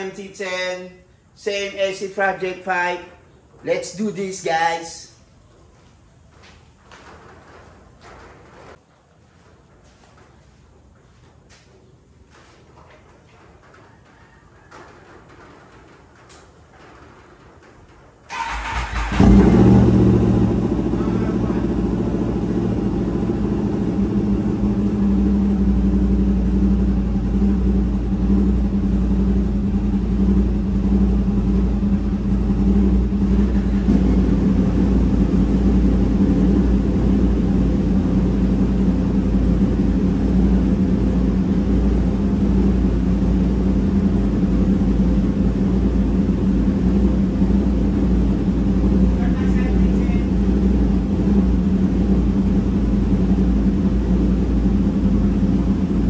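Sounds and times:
motorcycle engine idling: 18.3 - 56.0.

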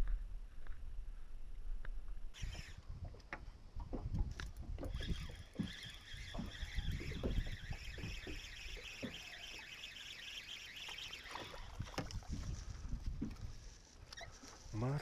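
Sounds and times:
wind on microphone: 1.6 - 9.1, 11.4 - 13.8
knocks and rumbles in a boat: 3.0 - 5.7
high chirring: 4.9 - 12.0.

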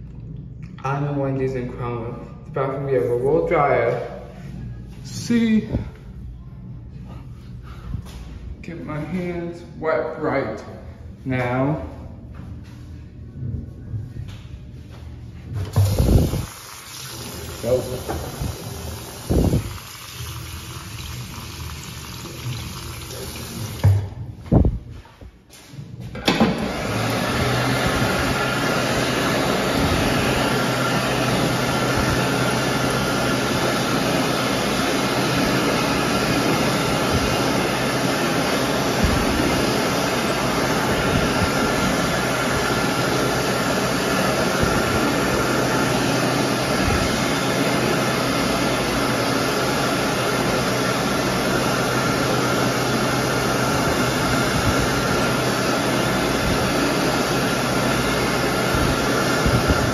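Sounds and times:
hand dryer running: 15.4 - 25.0, 26.0 - 59.9.

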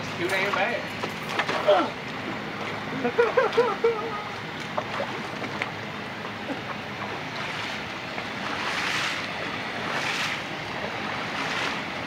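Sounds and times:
water splashing and sloshing: 0.3 - 12.0.

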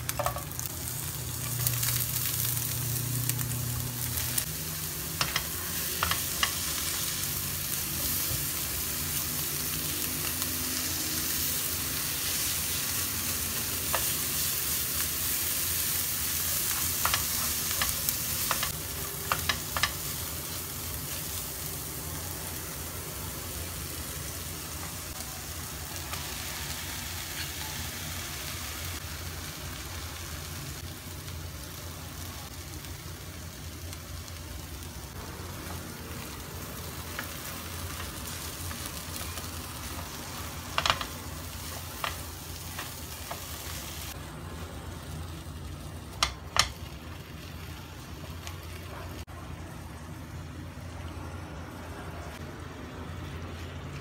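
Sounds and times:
food sizzling in frying pan: 0.0 - 49.3.

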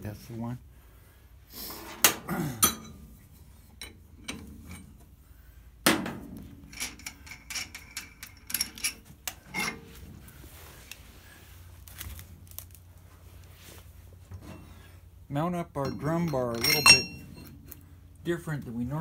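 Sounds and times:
metal clanking: 1.9 - 5.1, 5.8 - 10.3, 15.7 - 17.8
light metallic clicks and rings: 2.6 - 5.1, 6.5 - 10.0, 15.8 - 17.9.

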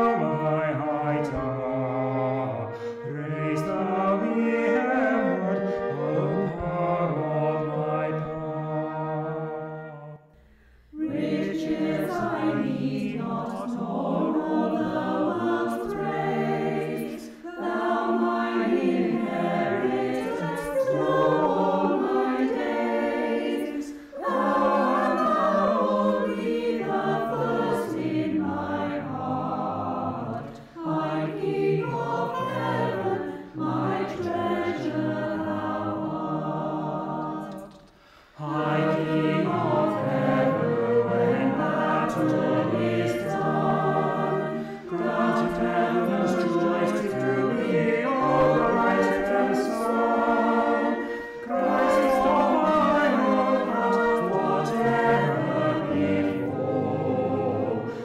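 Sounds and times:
church choir singing: 0.0 - 58.0
singers breathing: 2.7 - 3.0, 10.3 - 11.0, 23.8 - 24.2, 37.8 - 38.4, 44.5 - 44.9.

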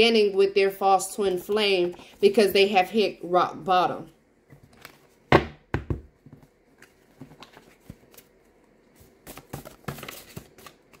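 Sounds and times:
cards being shuffled: 6.4 - 11.0.

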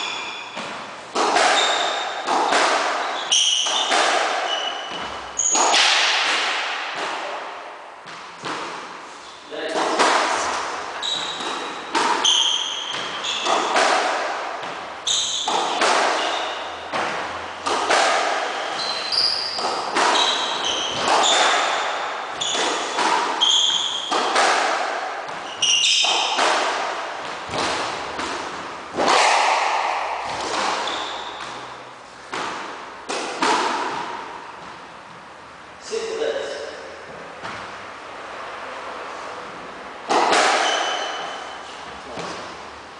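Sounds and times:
sneakers squeaking on wooden floor: 0.0 - 5.8, 10.4 - 28.8, 30.2 - 32.3, 40.1 - 42.6
squash ball hit by rackets: 0.0 - 35.3, 39.4 - 42.7.

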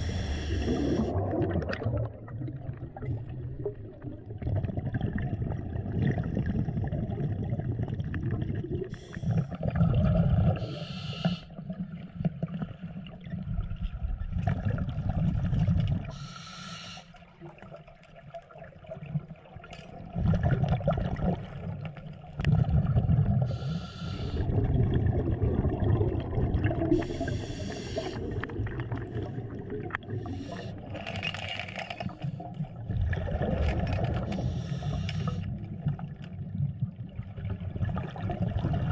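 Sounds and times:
scuba regulator breathing: 0.0 - 1.2, 8.9 - 9.6, 10.6 - 11.6, 16.1 - 17.2, 23.5 - 24.6, 26.9 - 32.6, 34.2 - 35.6
bubbly exhalations: 0.0 - 10.8, 22.4 - 36.0
muffled rumble of water: 0.0 - 38.9.

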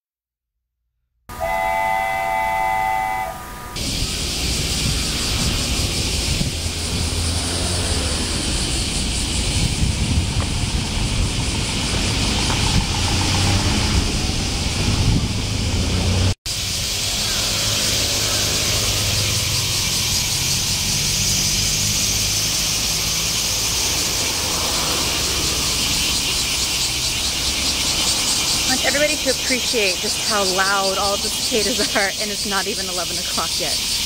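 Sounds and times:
whistle-like tone: 1.3 - 3.8
cicadas buzzing: 1.3 - 34.0.

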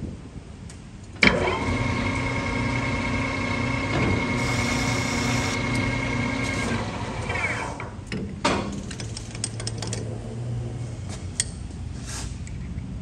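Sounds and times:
metal lathe whining: 1.6 - 7.7
lathe tool cutting metal: 4.2 - 6.7.

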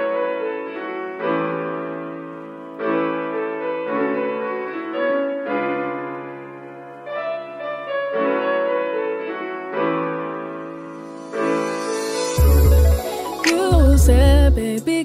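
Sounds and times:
instrumental background music: 10.2 - 15.0.

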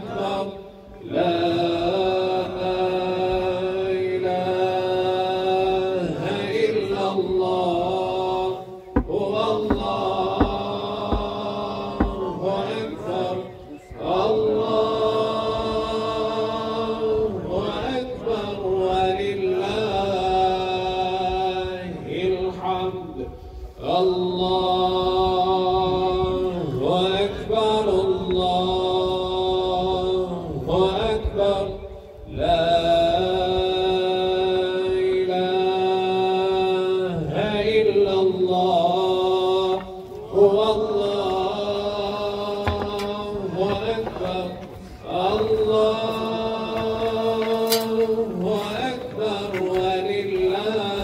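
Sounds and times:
man chanting religious recitation: 0.0 - 51.0
dull low thumps: 8.9 - 12.3.

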